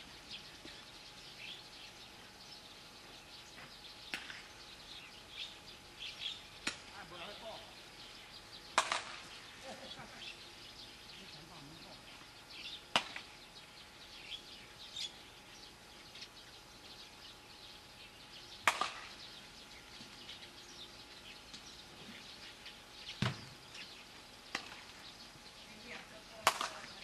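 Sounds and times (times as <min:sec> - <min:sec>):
bat hitting ball: 0:08.8 - 0:09.2.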